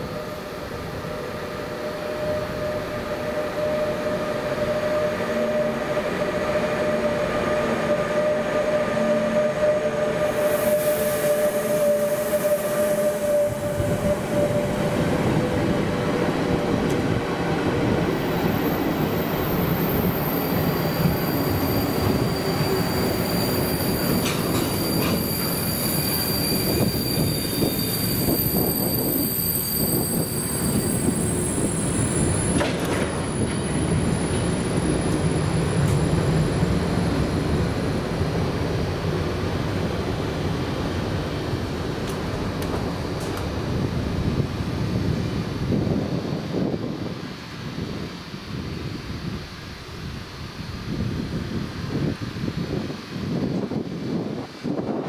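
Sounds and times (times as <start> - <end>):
train wheels rumbling on rails: 0.0 - 55.0
wheel squeal: 18.4 - 36.0.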